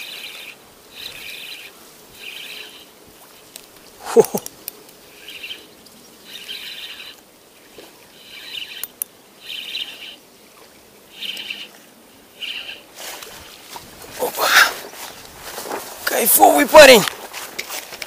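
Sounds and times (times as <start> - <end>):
songbird singing: 0.0 - 15.4
faint clicks: 8.6 - 9.1.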